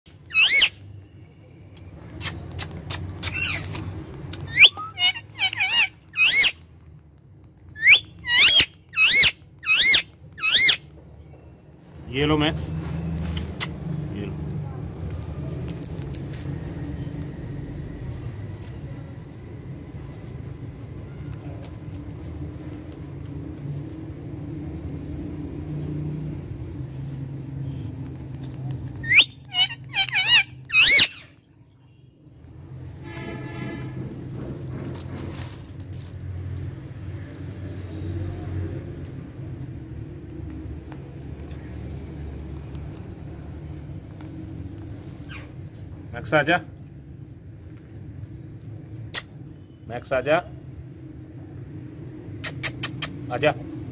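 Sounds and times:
parakeet shrill calls: 0:00.3 - 0:00.8, 0:03.2 - 0:03.8, 0:04.4 - 0:06.6, 0:07.8 - 0:10.9, 0:29.0 - 0:31.3.

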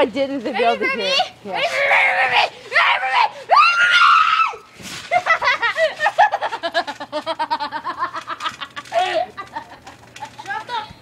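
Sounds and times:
girl laughing hard: 0:05.1 - 0:10.0.

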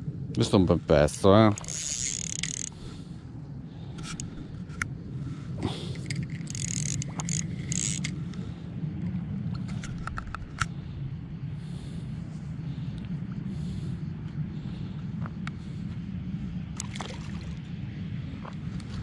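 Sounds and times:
steady low rumble: 0:00.0 - 0:19.0
spinning fishing reel turning: 0:01.5 - 0:02.9, 0:05.9 - 0:08.2
handling clicks and scrapes: 0:01.6 - 0:02.8, 0:03.9 - 0:04.9, 0:05.9 - 0:08.4, 0:09.6 - 0:10.8.

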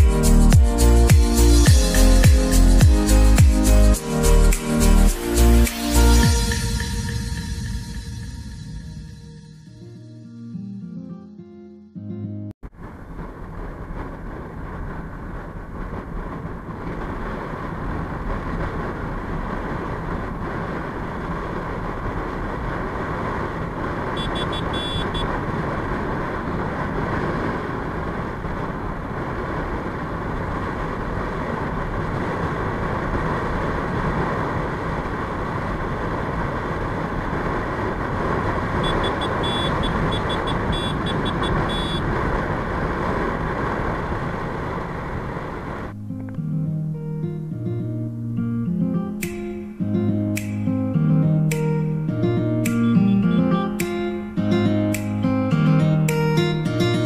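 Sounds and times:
wind rush: 0:12.6 - 0:46.0
motorbike engine and road noise: 0:12.6 - 0:57.0
short high beeps: 0:24.2 - 0:25.3, 0:38.8 - 0:42.0.

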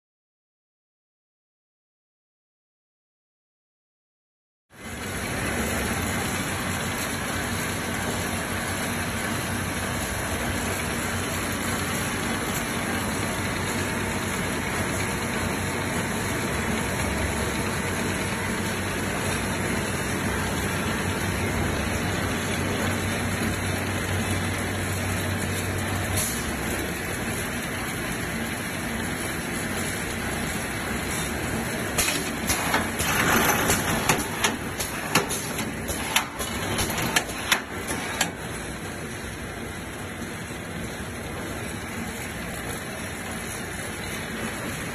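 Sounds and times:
knitting machine running: 0:30.2 - 0:38.8
sharp metallic clicks and clatter: 0:31.9 - 0:38.6.

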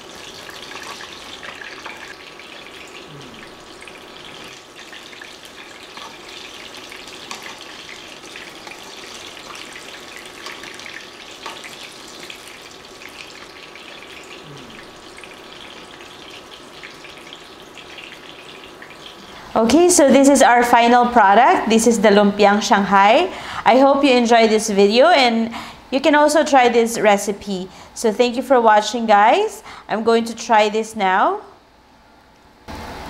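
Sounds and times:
spring rolls sizzling in oil: 0:00.0 - 0:20.0.

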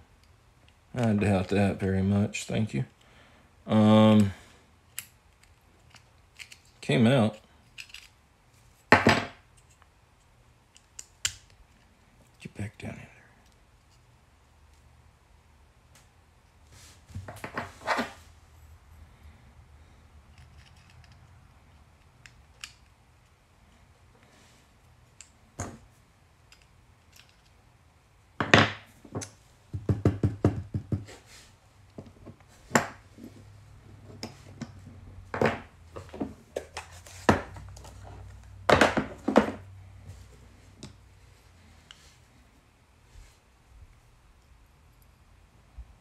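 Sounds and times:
padlock parts clicking and scraping: 0:04.9 - 0:08.9, 0:09.5 - 0:11.9, 0:20.2 - 0:23.4, 0:26.4 - 0:27.6.

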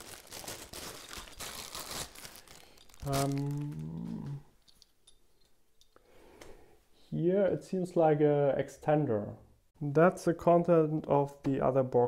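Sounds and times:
packaging crinkling: 0:00.0 - 0:04.4
man humming: 0:03.0 - 0:04.5.

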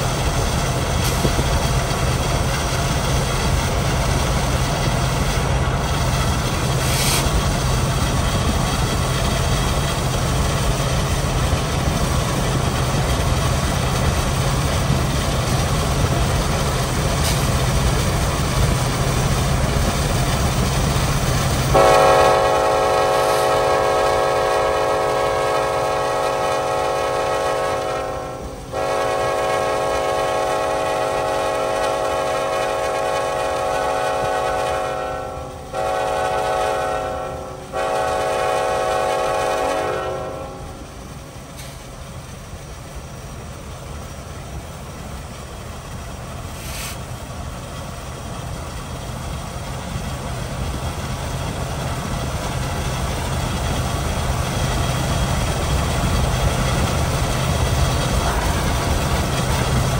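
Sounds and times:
diesel locomotive rumble: 0:00.0 - 0:59.9
locomotive air horn blasts: 0:21.7 - 0:40.8.

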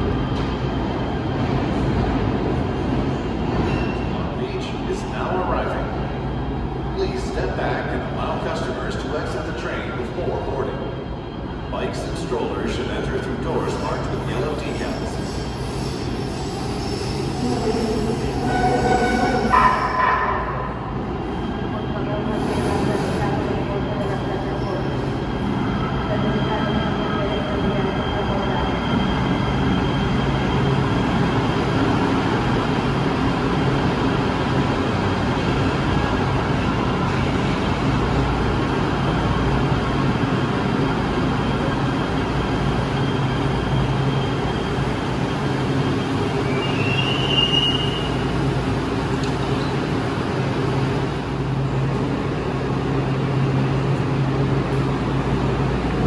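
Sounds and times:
train low hum: 0:00.0 - 0:56.0
train rumbling: 0:00.0 - 0:56.0
train brief high squeal: 0:18.3 - 0:20.3, 0:46.4 - 0:48.3.

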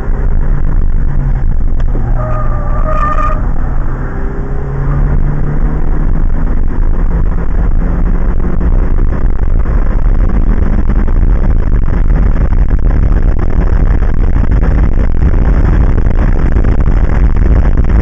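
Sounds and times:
car engine accelerating: 0:00.0 - 0:18.0
road and wind noise: 0:00.0 - 0:18.0
high squeal: 0:02.0 - 0:04.0.

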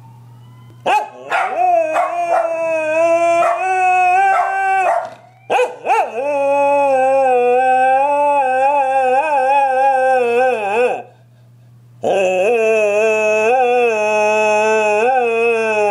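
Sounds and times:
ambulance siren: 0:00.0 - 0:05.6
dog howling: 0:00.8 - 0:11.1, 0:12.0 - 0:15.9.

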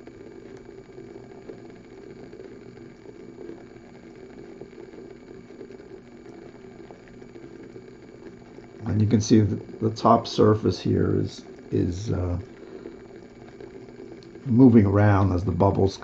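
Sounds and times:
water boiling and bubbling: 0:00.0 - 0:16.0.

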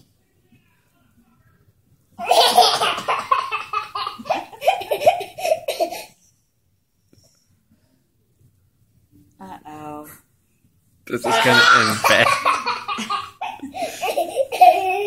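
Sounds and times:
toddler girl laughing: 0:11.3 - 0:15.0.

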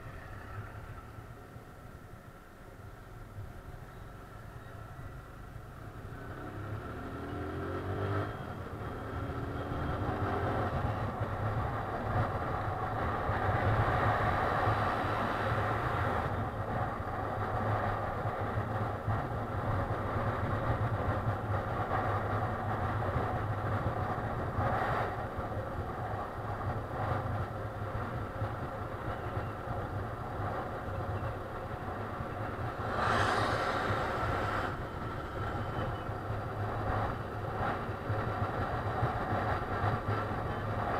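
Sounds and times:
wind rushing over microphone: 0:06.2 - 0:40.9
motorcycle engine: 0:26.6 - 0:40.9.

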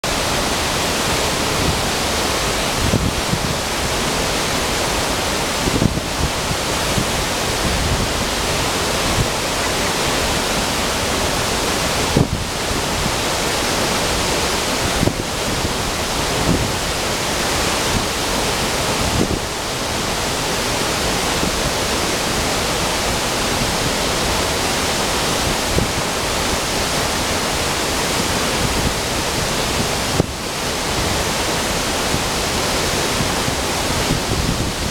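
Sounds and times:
water rushing over boulders: 0:00.0 - 0:34.9.

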